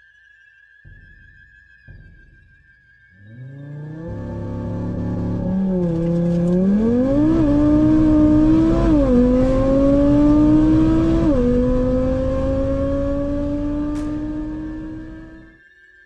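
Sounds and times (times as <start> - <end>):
car engine accelerating: 3.2 - 15.6.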